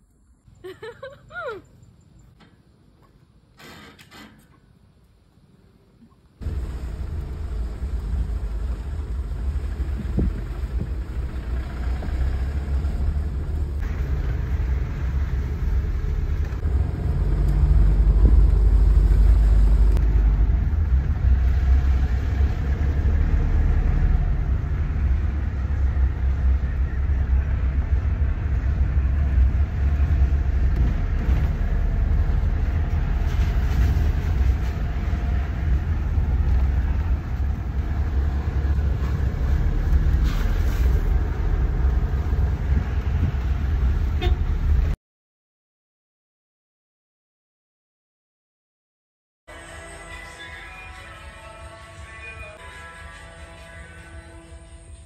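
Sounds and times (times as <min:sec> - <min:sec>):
road and engine rumble: 0:00.0 - 0:45.0, 0:49.5 - 0:55.0
wind buffeting microphone: 0:41.0 - 0:44.9.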